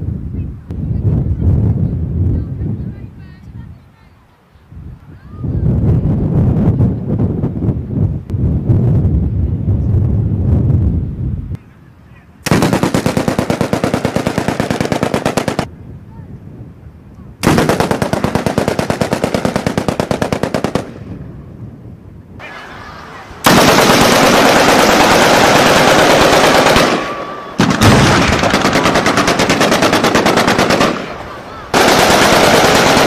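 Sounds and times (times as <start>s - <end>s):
machine-gun fire: 12.5s - 15.7s, 17.4s - 21.0s, 23.4s - 33.0s.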